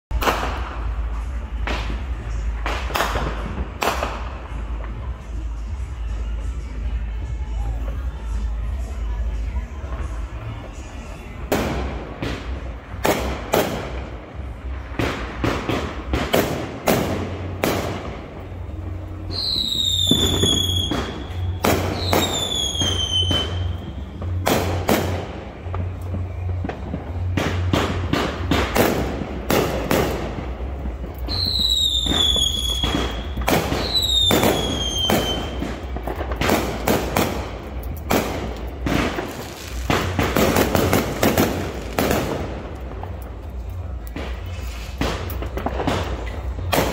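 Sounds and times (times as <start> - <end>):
fireworks bangs and crackles: 0.1 - 46.9
high falling firework whistles: 19.2 - 25.2, 31.2 - 35.8.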